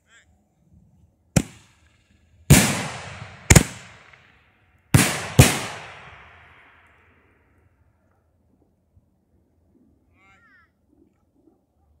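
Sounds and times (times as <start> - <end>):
fireworks bangs with echo: 1.4 - 1.9, 2.5 - 4.4, 5.0 - 6.8.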